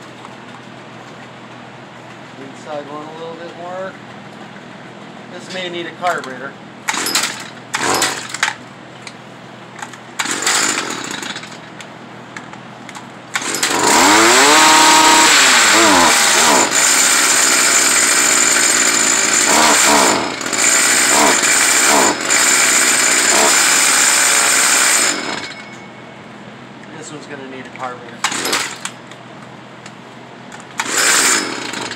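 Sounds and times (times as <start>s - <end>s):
string trimmer engine revving: 6.9s - 8.4s, 10.2s - 11.5s, 13.3s - 25.5s, 28.3s - 28.9s, 30.7s - 31.9s.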